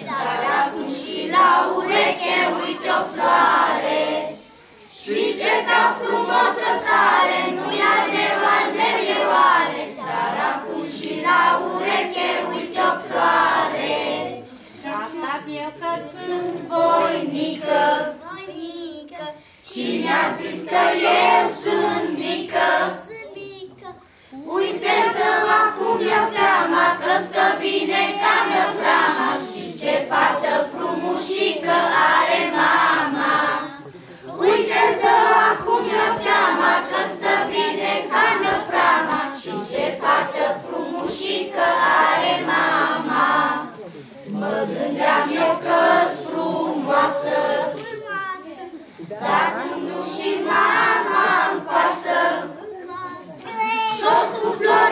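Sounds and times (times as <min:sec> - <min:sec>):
children's choir singing: 0:00.0 - 0:23.3, 0:24.4 - 0:54.9.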